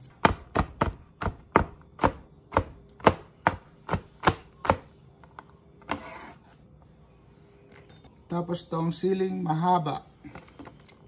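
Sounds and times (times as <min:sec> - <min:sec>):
knife chopping on plastic board: 0:00.0 - 0:04.9.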